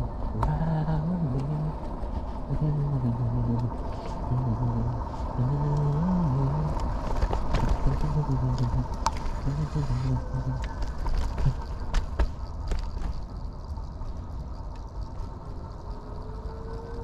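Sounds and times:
steady low rumble: 0.0 - 17.0
man talking: 7.8 - 10.6.

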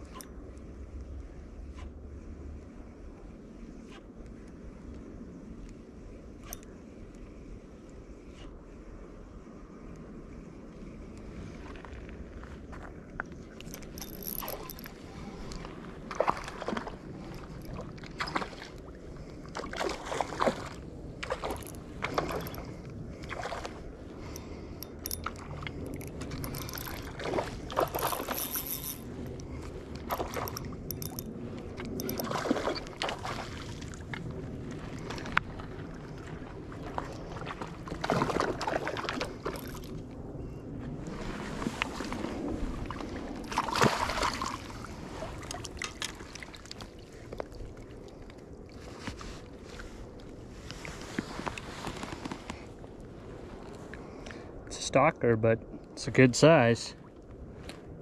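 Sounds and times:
fish splashing in water: 43.5 - 46.9.

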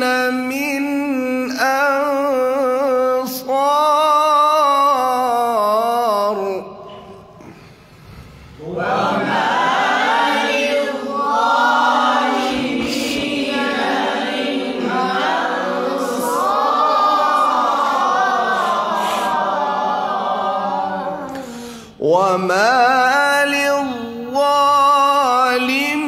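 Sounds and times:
man chanting recitation: 0.0 - 7.4, 22.0 - 26.0
man breathing: 7.0 - 8.6, 21.3 - 22.0.

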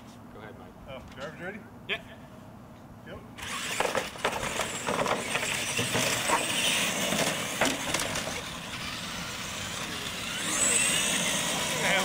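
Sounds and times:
toy truck motors running: 3.4 - 12.0
tyres rolling on concrete: 3.6 - 8.8.

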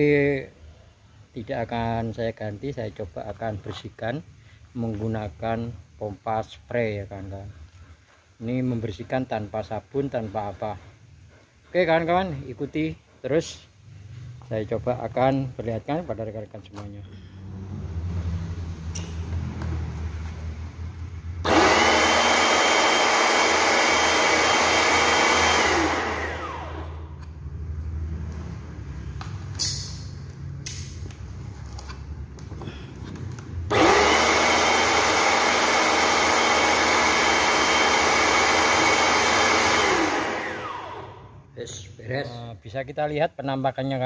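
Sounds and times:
pressure washer motor whining: 21.4 - 27.2, 33.7 - 41.3.

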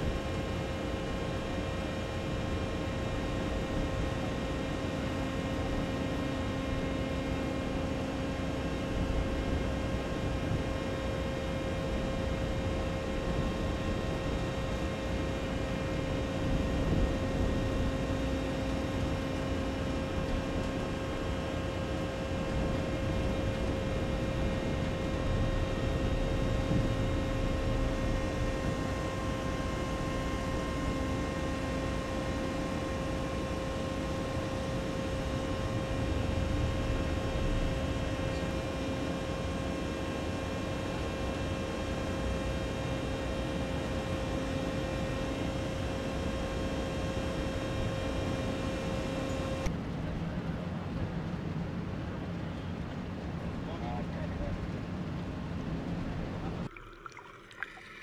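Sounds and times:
lower hum: 0.0 - 42.8
ship machinery drone: 0.0 - 50.5
constant whine: 0.0 - 56.8.

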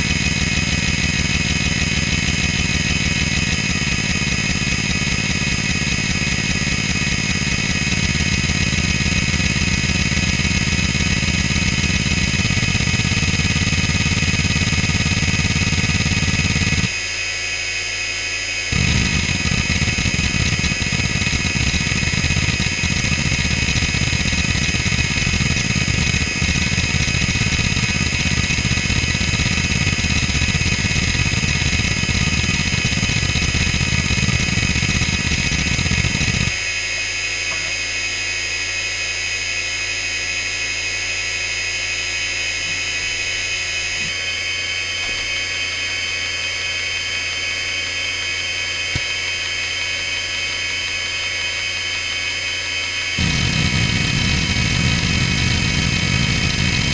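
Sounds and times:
hard drive high-pitched whine: 2.7 - 56.9
hard drive seeking chatter: 18.7 - 36.5, 53.2 - 56.9.

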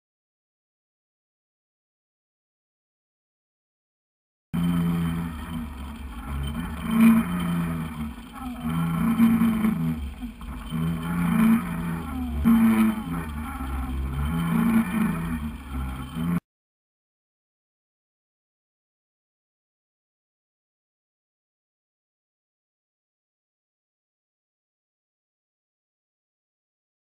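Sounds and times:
boat motor drone underwater: 4.6 - 16.4.

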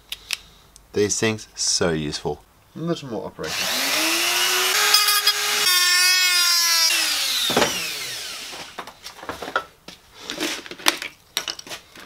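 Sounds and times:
rotary tool whining: 3.5 - 8.9.

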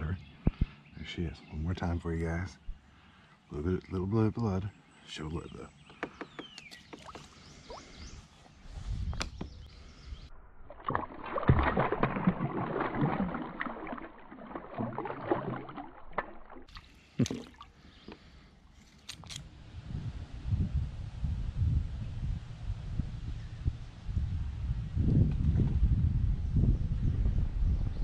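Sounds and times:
water splashing and sloshing: 6.6 - 8.6, 10.6 - 19.4.

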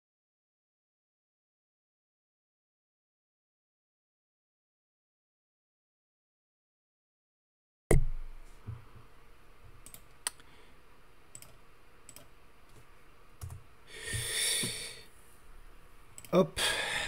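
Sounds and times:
computer mouse and keyboard clicks: 9.8 - 10.4, 11.3 - 12.8, 13.4 - 14.3.

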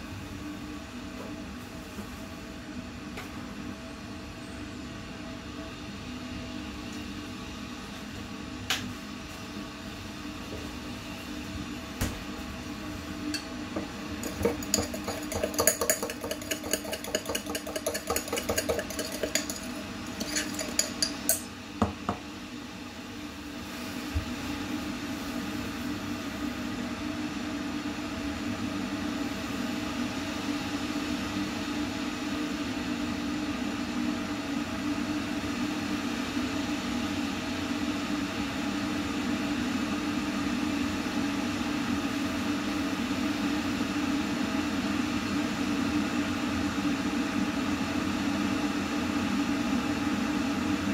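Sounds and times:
electric kettle rumbling: 12.3 - 26.9.

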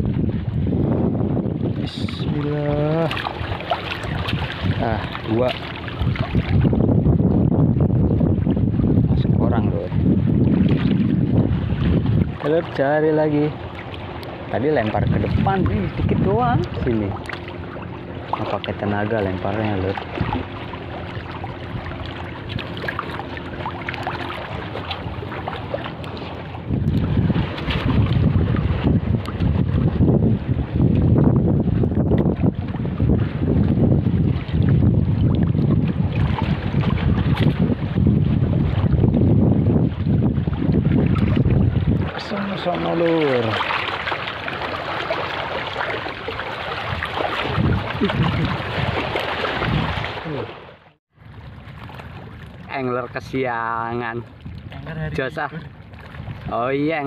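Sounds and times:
low steady hum: 0.0 - 39.2
waves lapping and splashing: 0.0 - 57.0
wind buffeting microphone: 0.0 - 57.0.

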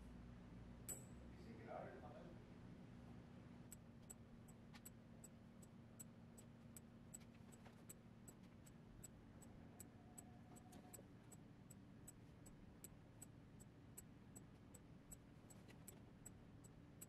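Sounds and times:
faint high ticks: 3.7 - 17.0.

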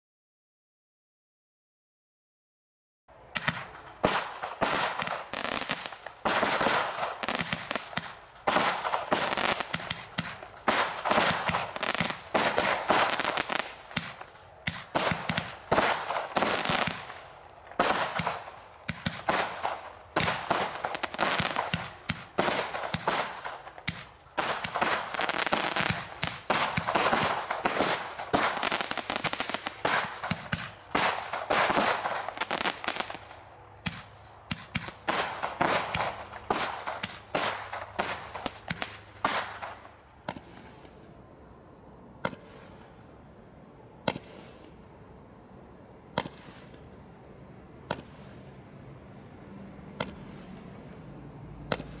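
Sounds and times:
firework barrage bangs and crackling: 3.3 - 41.0, 44.0 - 44.7, 46.1 - 46.9, 47.8 - 48.5, 50.0 - 50.5.

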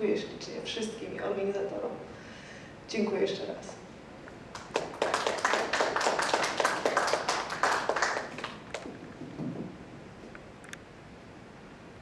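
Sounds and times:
small audience applauding: 4.5 - 9.0.

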